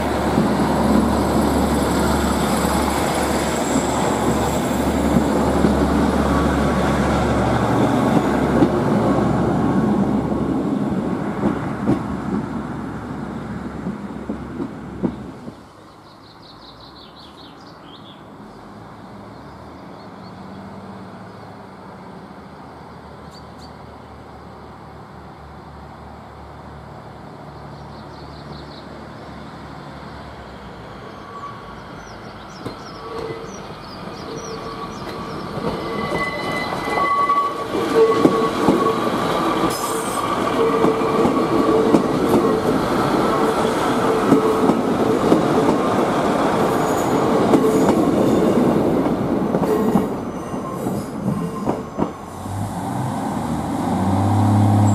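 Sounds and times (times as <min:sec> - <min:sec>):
train whine: 0:00.0 - 0:16.0, 0:28.9 - 0:54.9
diesel train passing: 0:00.0 - 0:54.9.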